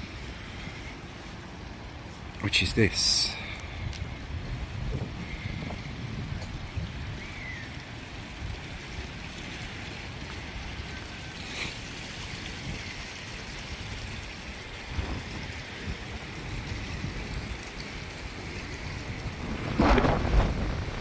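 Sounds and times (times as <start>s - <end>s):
fountain jets splashing: 0.0s - 21.0s
wind rumbling on microphone: 0.0s - 21.0s.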